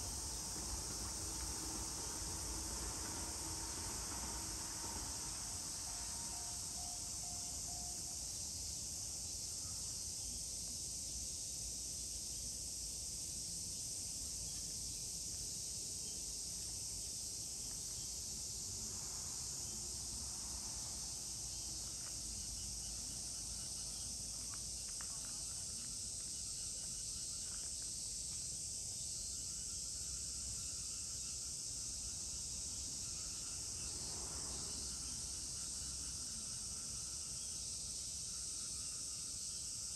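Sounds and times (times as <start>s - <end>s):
low background rumble: 0.0s - 8.0s
insect chorus drone: 0.0s - 39.9s.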